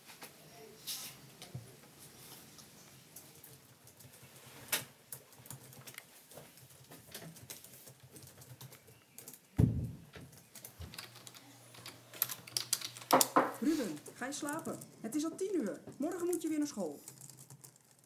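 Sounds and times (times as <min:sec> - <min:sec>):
laptop keyboard typing: 0:03.2 - 0:09.6, 0:10.3 - 0:18.0
low thump: 0:09.6 - 0:10.0.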